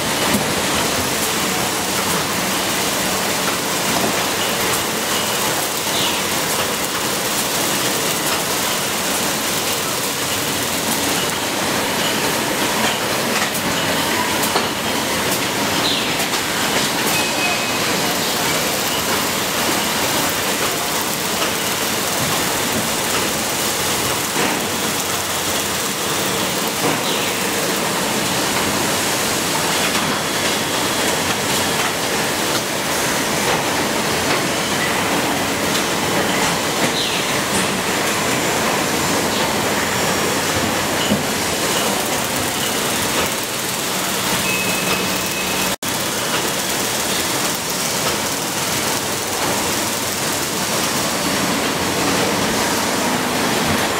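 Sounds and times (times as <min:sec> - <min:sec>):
machinery hiss and clatter: 0:00.0 - 0:53.9
brief machine tones: 0:17.1 - 0:18.0, 0:44.3 - 0:45.8.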